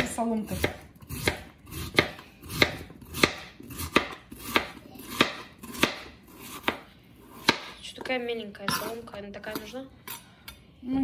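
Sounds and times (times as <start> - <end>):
knife slicing potato on board: 0.0 - 7.8.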